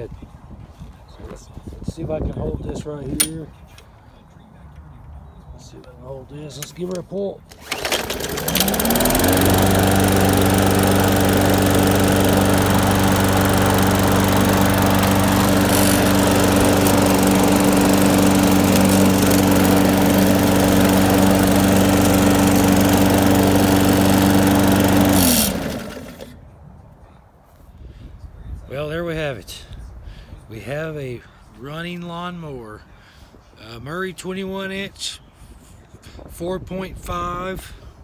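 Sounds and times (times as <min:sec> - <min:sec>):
lawn mower engine running: 0:06.6 - 0:26.4
recoil cord pull: 0:07.5 - 0:09.6, 0:15.4 - 0:17.1.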